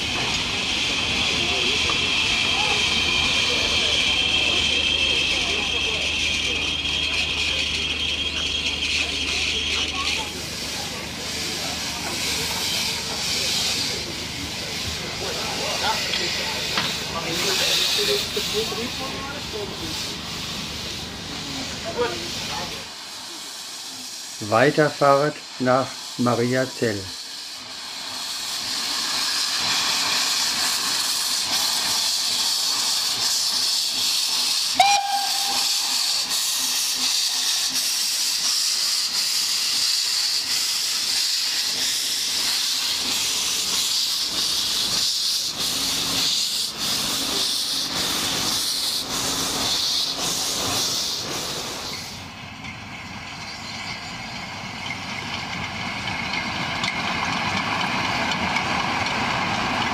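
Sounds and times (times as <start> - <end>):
steam locomotive hissing: 0.0 - 59.9
train running: 0.0 - 59.9
steam whistle blast: 34.7 - 36.2.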